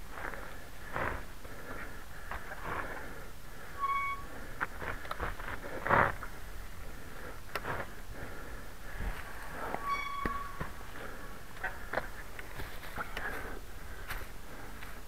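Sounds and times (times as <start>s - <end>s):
tyres rolling on dirt trail: 0.0s - 15.0s.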